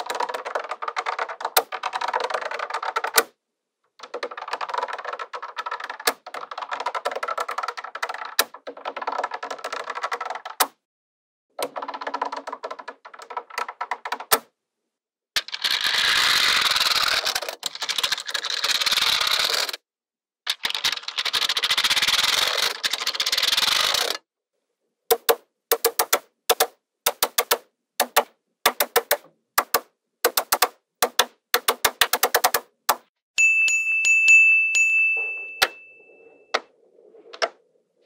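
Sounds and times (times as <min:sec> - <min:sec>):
magnetic balls clicking: 0:25.1 - 0:33.0.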